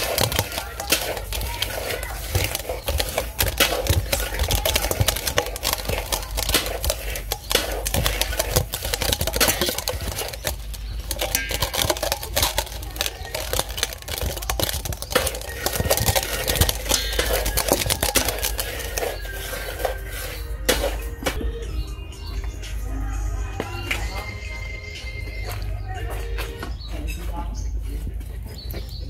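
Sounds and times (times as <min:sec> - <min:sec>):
metal spoon scraping metal bowl: 0:00.0 - 0:21.4.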